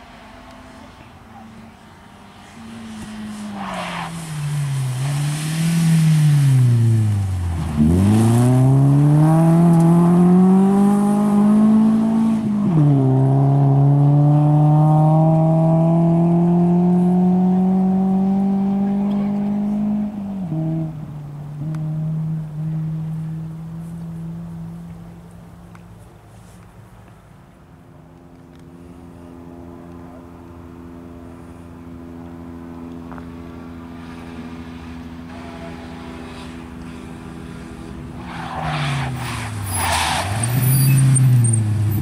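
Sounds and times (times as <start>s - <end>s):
rally car engine revving: 2.4s - 24.8s.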